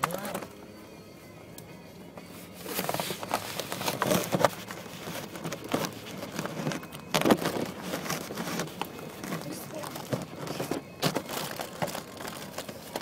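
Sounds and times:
foil balloon crinkling on microphone: 2.6 - 13.0.

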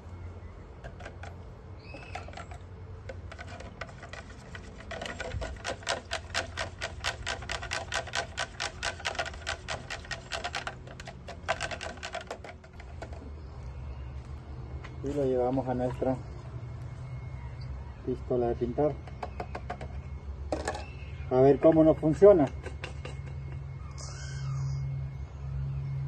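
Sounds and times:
stirring rod knocking plastic tub: 0.8 - 1.3, 1.9 - 13.2.

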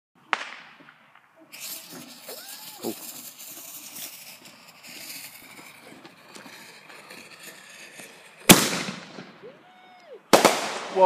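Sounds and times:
firework hiss and crackling: 0.4 - 9.4
firework bang: 7.4 - 9.4, 10.3 - 11.0.

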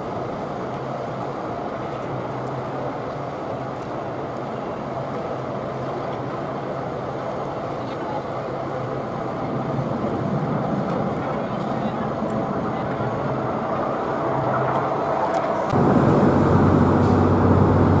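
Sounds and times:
large ship passing: 0.0 - 18.0
low even drone: 8.7 - 18.0.

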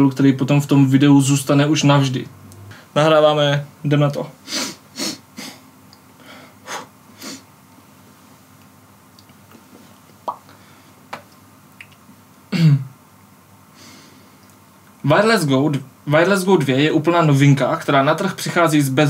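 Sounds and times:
man breathing and sniffing: 4.4 - 7.5, 13.7 - 14.4
loud throat sound: 12.5 - 12.9.

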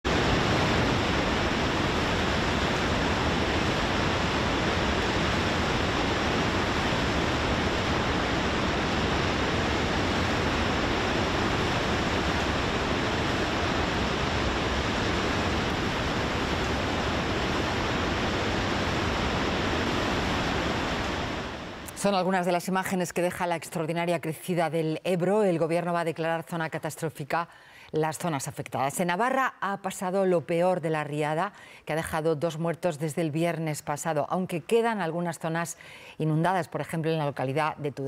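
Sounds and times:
floodwater rushing: 0.1 - 21.9.

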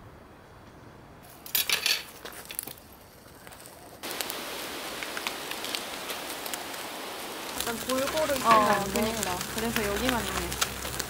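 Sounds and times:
meat sizzling on a grill: 3.5 - 11.0
sharp clicks and rustles: 7.5 - 11.0.

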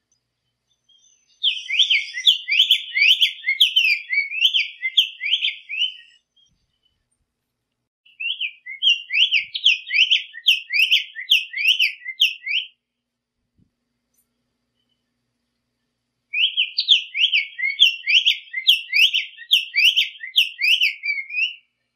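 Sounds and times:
bird singing slurred notes: 0.8 - 6.9, 8.1 - 12.7, 16.4 - 21.7.

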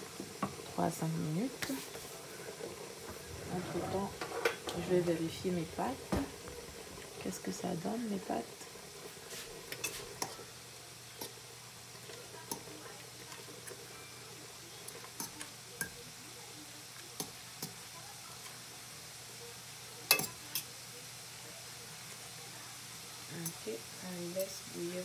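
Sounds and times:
metal utensil clinking against pot: 14.9 - 16.0, 20.1 - 20.7.

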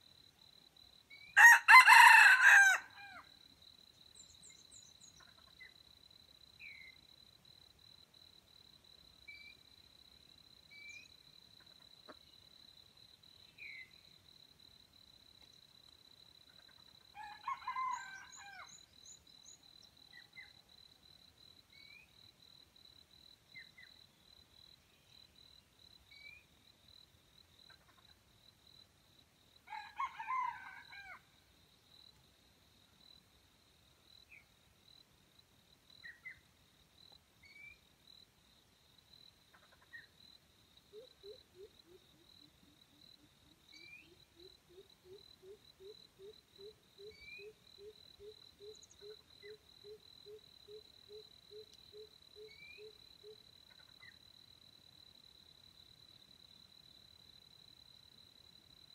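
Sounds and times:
rooster crowing: 1.4 - 3.3, 17.2 - 18.8, 29.7 - 31.2.

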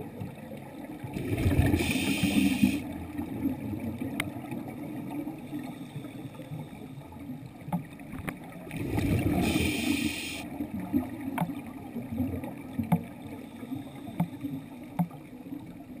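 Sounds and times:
muffled underwater noise: 1.0 - 2.9, 8.9 - 10.4
loud hiss: 1.7 - 2.8, 9.4 - 10.4.

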